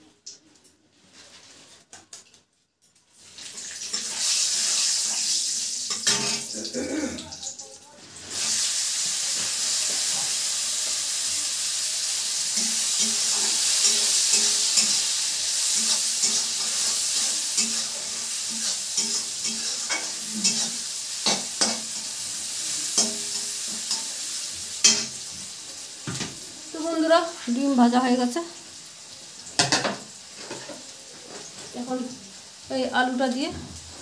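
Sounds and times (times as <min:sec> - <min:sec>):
vegetables sizzling in hot oil: 0:03.2 - 0:34.0
spatula scraping metal pan: 0:12.5 - 0:22.0.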